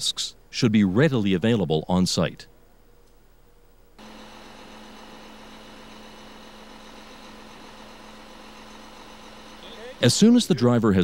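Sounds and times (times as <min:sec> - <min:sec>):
truck engine running: 0:04.0 - 0:10.8.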